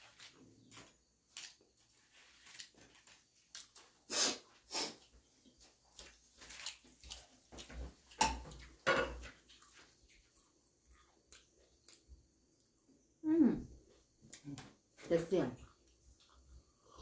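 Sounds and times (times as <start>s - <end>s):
crunching of eating fried snacks: 0.0s - 7.8s.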